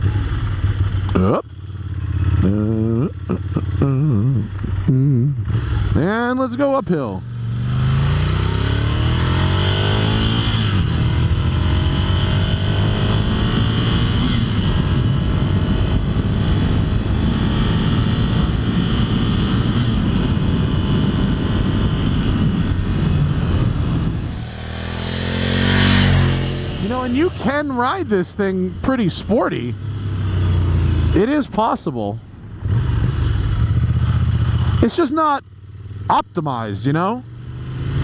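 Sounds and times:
motorcycle engine under throttle: 0.0 - 6.3, 6.9 - 31.2, 32.5 - 36.2
motorcycle approaching: 0.0 - 38.0
wind noise: 9.0 - 27.6.

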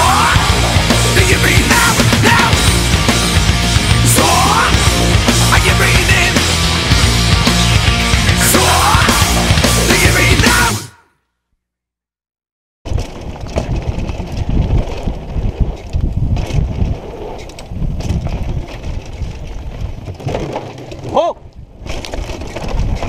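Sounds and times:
tyres rumbling over dirt: 12.9 - 23.0.

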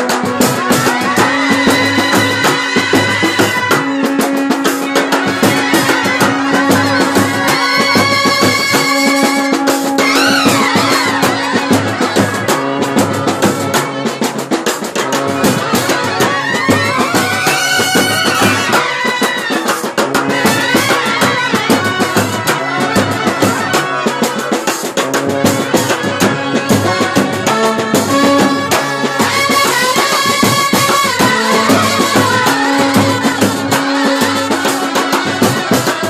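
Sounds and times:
brass and reed melody: 0.0 - 36.0
side drums and cymbal beat: 0.0 - 36.0.

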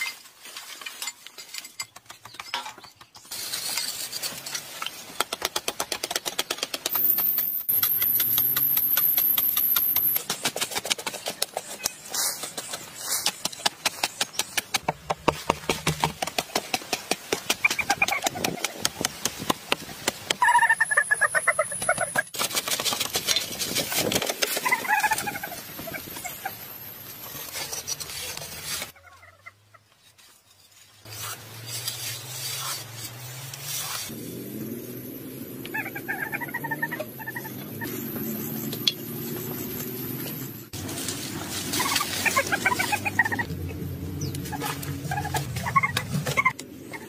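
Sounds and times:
hand tools chipping packed earth: 0.0 - 20.5, 21.8 - 25.4, 30.0 - 34.2
chickens clucking: 20.4 - 22.4, 24.6 - 26.5, 35.7 - 37.9, 41.7 - 43.5, 44.2 - 47.0.

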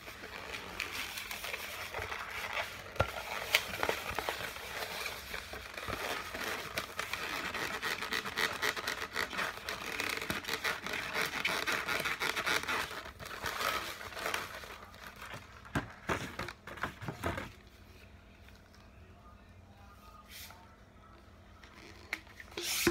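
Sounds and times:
balloons squeaking and rubbing: 0.0 - 15.2, 21.6 - 22.9.

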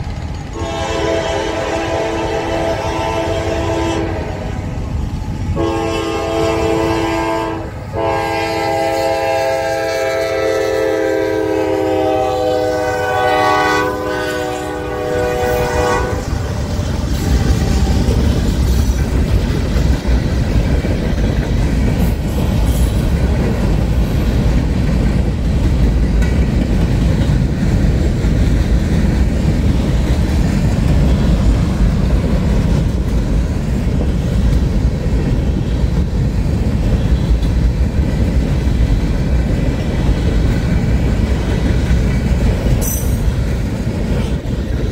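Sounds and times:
wheels clacking over rail joints: 0.0 - 1.2, 15.3 - 44.9
freight train rumbling past: 0.0 - 44.9
locomotive air horn: 0.5 - 4.6, 5.6 - 18.2.

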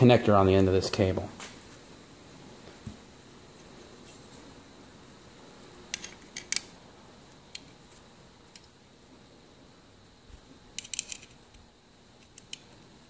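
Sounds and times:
metallic clamp clicks: 5.9 - 6.7, 10.8 - 11.6, 12.2 - 12.7.

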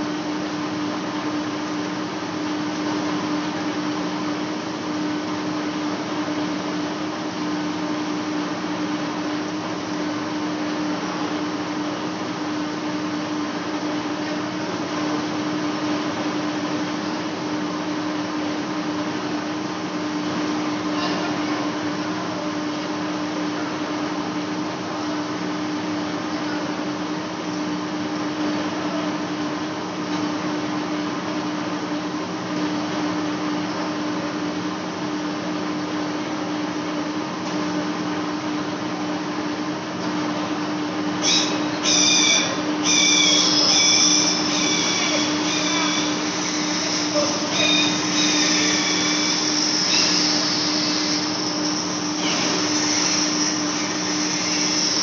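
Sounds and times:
lathe humming: 41.2 - 55.0.

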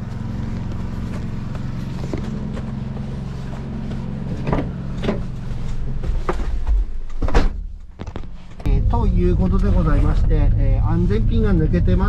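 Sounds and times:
engine idling: 0.0 - 7.2.

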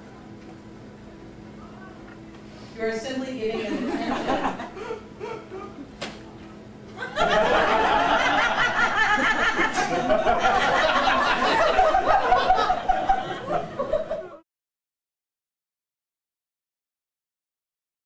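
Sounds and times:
audience laughing loudly: 3.5 - 5.9, 6.9 - 14.4.

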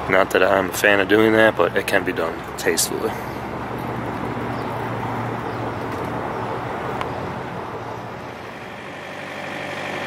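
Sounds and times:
diesel truck idling: 0.0 - 10.0
outdoor noise: 0.0 - 10.0
thin steady whine: 5.7 - 10.0.

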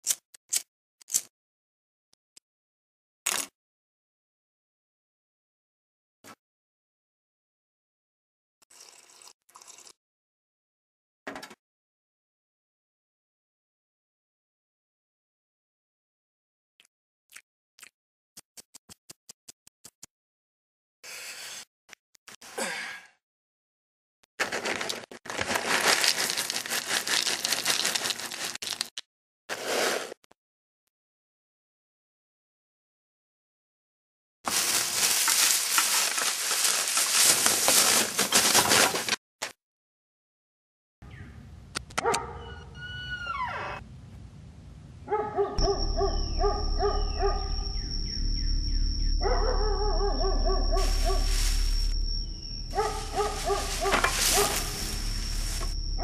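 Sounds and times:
box of kibble shaking: 24.4 - 28.9, 34.5 - 39.2
dry kibble pouring into a bowl: 24.4 - 28.9, 34.5 - 38.1
dogs barking rapidly: 42.0 - 42.6, 45.1 - 47.5, 49.2 - 51.3, 52.7 - 54.8
door squealing open: 42.3 - 43.8
low rumble: 45.6 - 56.0
thin high whine: 45.6 - 56.0.

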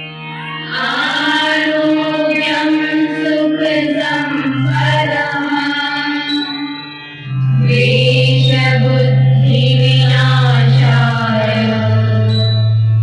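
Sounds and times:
sustained drone: 6.3 - 13.0.

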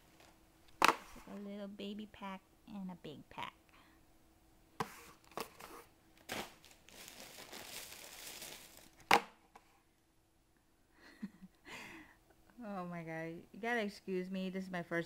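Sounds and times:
cardboard boxes crinkling and rustling: 5.1 - 9.1.

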